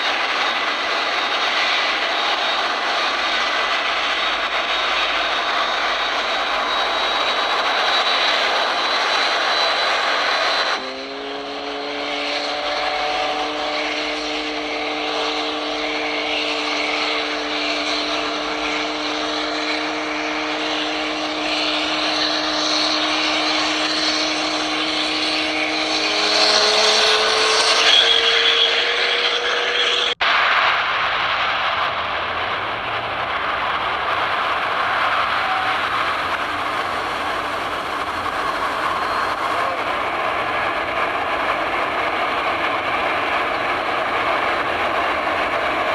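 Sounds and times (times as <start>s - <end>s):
jet engine rushing: 0.0s - 45.9s.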